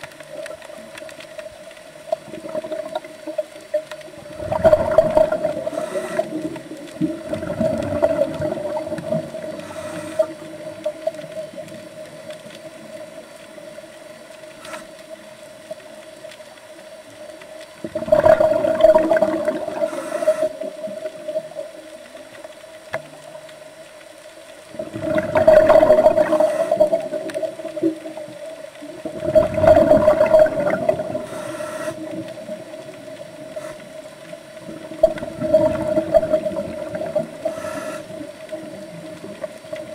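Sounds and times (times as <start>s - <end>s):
diver exhaling bubbles underwater: 4.2s - 10.6s, 17.8s - 21.2s, 24.7s - 28.2s, 29.0s - 32.7s, 34.6s - 39.4s.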